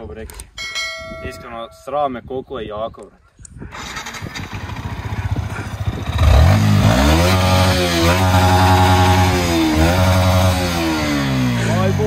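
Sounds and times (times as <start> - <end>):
motorcycle engine revving: 3.7 - 12.0.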